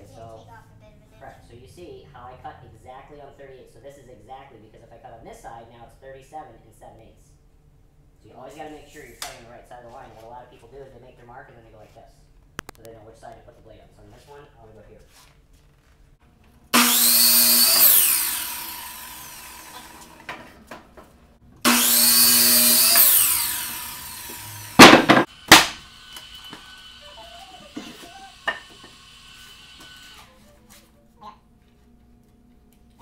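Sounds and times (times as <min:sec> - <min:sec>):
miter saw cutting board: 0:16.8 - 0:20.5, 0:21.6 - 0:30.4
sharp loud knocks: 0:24.8 - 0:25.8.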